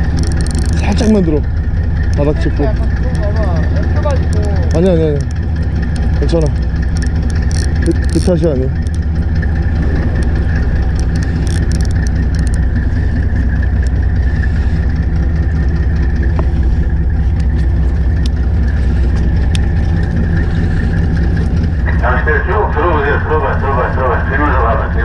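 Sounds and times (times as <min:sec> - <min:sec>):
faint ticks: 0:00.0 - 0:01.2, 0:04.1 - 0:09.1, 0:10.2 - 0:12.8, 0:13.5 - 0:14.0, 0:16.2 - 0:21.7
boat engine humming: 0:00.0 - 0:25.0.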